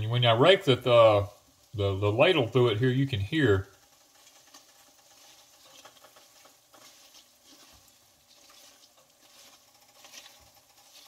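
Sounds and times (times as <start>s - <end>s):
light sizzling of frying: 0.0s - 11.0s
metal spatula scraping: 3.8s - 11.0s.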